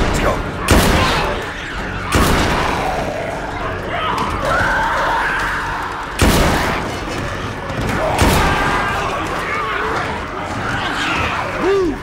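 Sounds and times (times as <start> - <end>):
zombies shrieking and snarling: 0.0 - 12.0
loud gunshot: 0.7 - 1.3, 2.1 - 2.8, 6.2 - 6.9.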